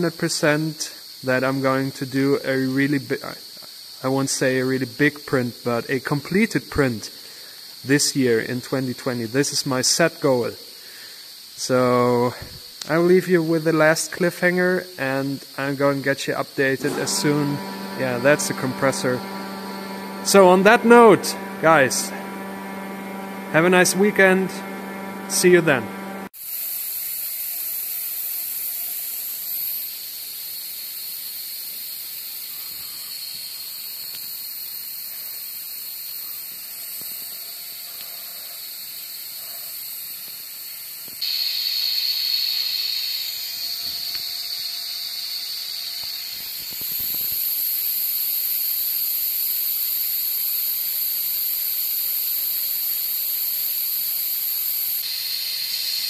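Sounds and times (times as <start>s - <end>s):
compressed air hissing: 7.1s - 7.8s, 10.6s - 26.3s, 28.2s - 49.1s, 52.5s - 56.0s.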